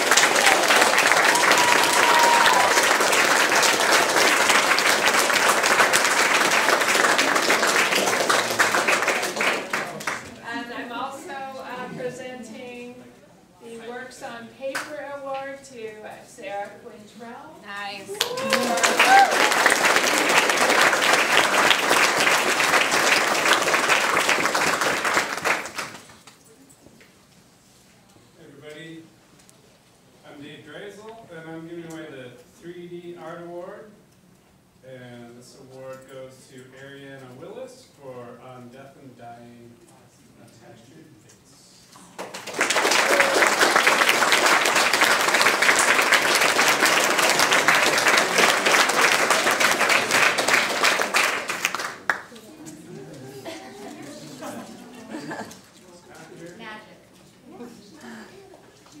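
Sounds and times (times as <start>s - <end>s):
small crowd applauding: 0.0s - 10.4s, 18.1s - 26.4s, 42.0s - 53.5s.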